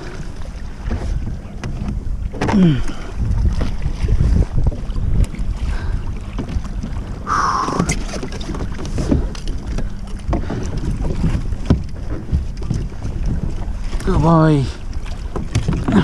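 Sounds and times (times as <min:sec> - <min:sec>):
water slapping against hull: 0:00.0 - 0:16.0
wind buffeting microphone: 0:00.4 - 0:16.0.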